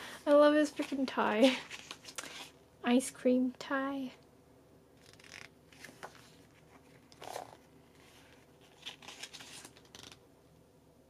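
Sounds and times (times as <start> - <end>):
photobook pages rustling: 0.6 - 2.6, 5.0 - 10.2.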